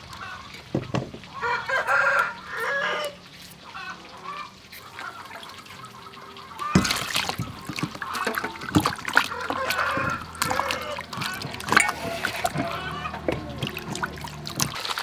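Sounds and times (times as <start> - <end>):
water splashing in metal bowl: 0.0 - 15.0
rooster crowing: 1.4 - 3.2, 9.3 - 14.2.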